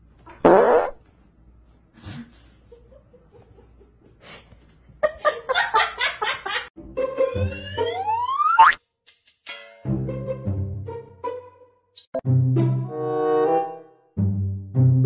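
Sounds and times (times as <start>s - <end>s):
cartoon boing: 8.4s - 8.8s.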